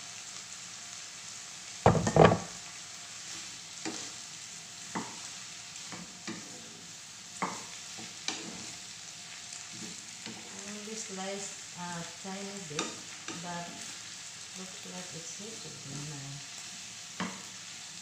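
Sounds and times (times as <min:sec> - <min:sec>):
vegetables sizzling in a frying pan: 0:00.0 - 0:18.0
wooden spatula knocking on pan: 0:01.9 - 0:02.6, 0:17.2 - 0:17.4.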